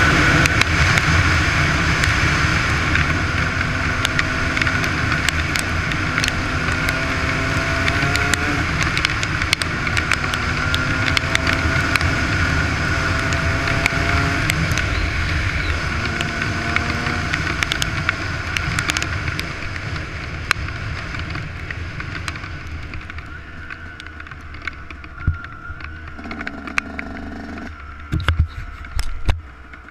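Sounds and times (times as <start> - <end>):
motorcycle engine revving: 0.0 - 19.8, 22.2 - 28.2
wind rushing on helmet: 0.0 - 27.0
sharp ticks: 4.0 - 7.0, 25.8 - 27.7.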